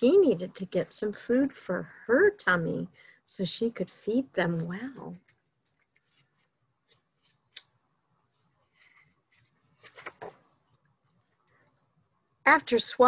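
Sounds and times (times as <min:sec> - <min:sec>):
paper page turning: 0:08.3 - 0:10.8
paper swishing rustle: 0:08.7 - 0:10.7.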